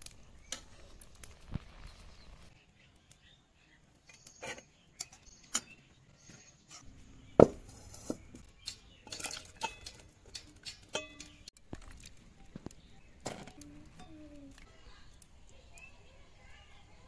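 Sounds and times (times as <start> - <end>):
steel cookware clinking: 7.9 - 11.5.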